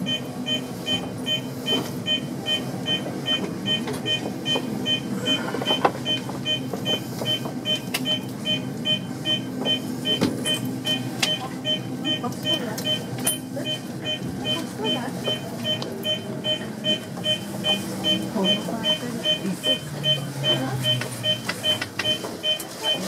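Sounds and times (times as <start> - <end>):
train equipment low hum: 0.0 - 23.0
rapid electronic beeping: 6.0 - 23.0.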